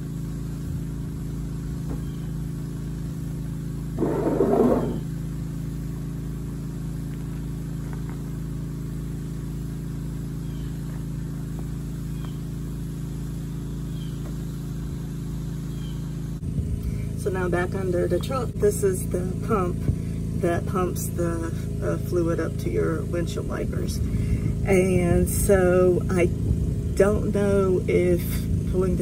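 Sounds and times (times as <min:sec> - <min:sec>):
low mechanical hum: 0:00.0 - 0:29.0
short rattling scrape: 0:04.0 - 0:05.2.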